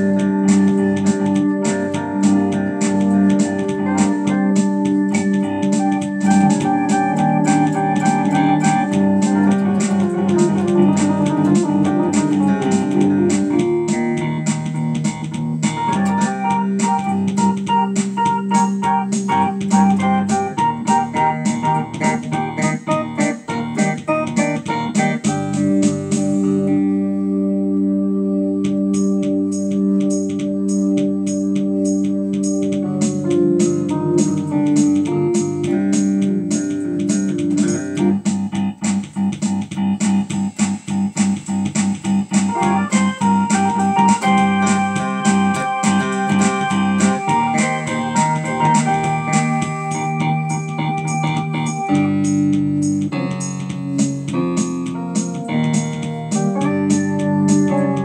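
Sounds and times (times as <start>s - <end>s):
steady beat: 0.0s - 26.7s, 28.6s - 58.0s
instrumental music with held chords: 0.0s - 58.0s.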